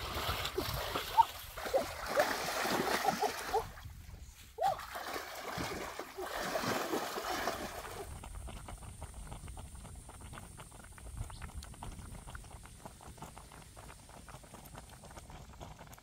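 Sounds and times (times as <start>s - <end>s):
pot boiling with popping bubbles: 7.8s - 16.0s.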